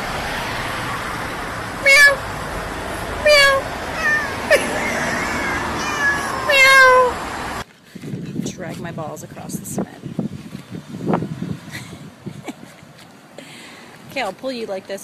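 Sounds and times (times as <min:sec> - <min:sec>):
moving car rushing noise: 0:00.0 - 0:07.6
cat meowing: 0:03.2 - 0:07.2.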